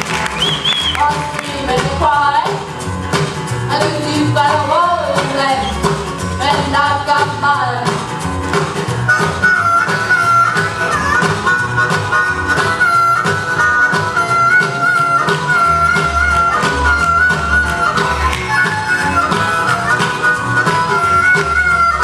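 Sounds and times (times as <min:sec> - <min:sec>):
band music with steady beat: 0:00.0 - 0:22.0.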